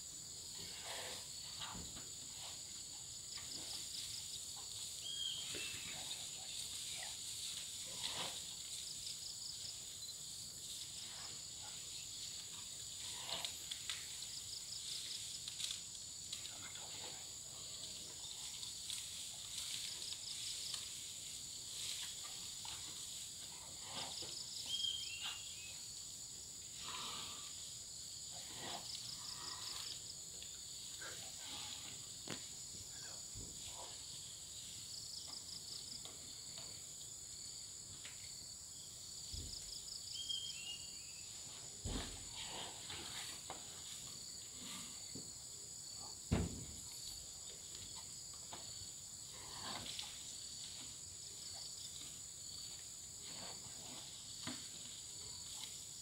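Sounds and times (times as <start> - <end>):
insect drone: 0.0 - 56.0
short pulsed insect trill: 2.4 - 13.4.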